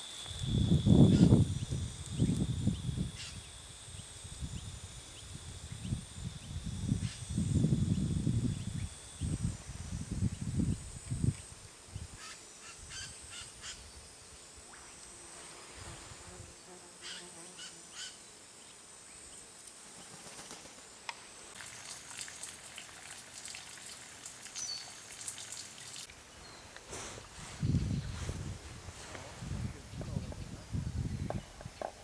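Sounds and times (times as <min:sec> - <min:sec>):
high-pitched insect drone: 0:00.0 - 0:11.3.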